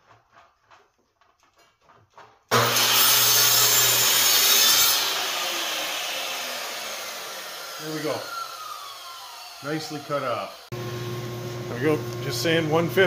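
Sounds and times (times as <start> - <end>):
miter saw cutting wood: 2.5 - 11.0.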